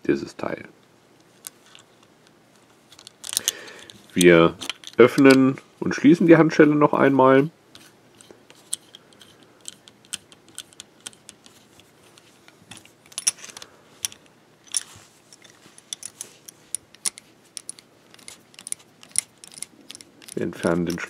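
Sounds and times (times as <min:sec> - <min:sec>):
key turning in handcuff lock: 0:02.9 - 0:05.5, 0:08.6 - 0:11.5, 0:12.8 - 0:21.0
metallic clicks and clinks: 0:03.0 - 0:05.5, 0:12.7 - 0:21.0.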